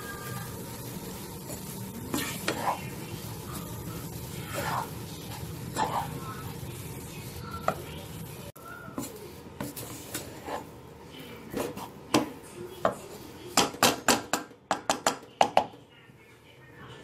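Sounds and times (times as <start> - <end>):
wooden spatula scraping pot: 1.4 - 6.5, 8.9 - 10.8, 11.4 - 12.2.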